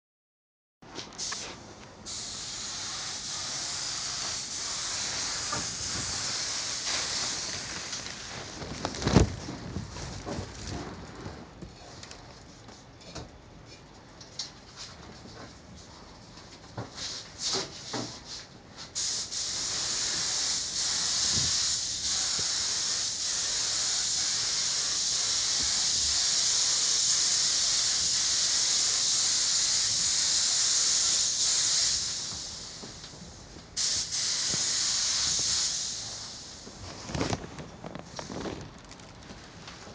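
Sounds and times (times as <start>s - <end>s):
paint spray gun hissing: 1.2s - 1.4s, 2.1s - 8.6s, 19.0s - 33.1s, 33.8s - 36.7s.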